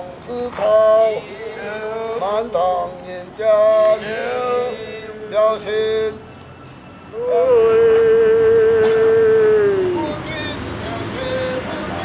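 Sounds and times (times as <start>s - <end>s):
man chanting: 7.2s - 12.0s.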